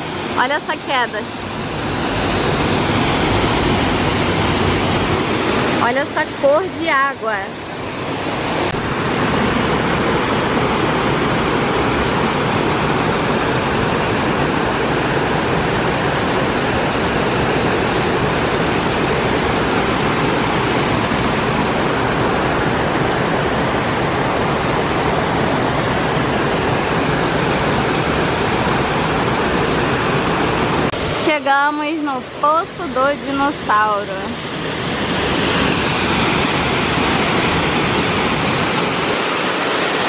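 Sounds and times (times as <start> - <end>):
waterfall rushing: 0.0 - 40.0.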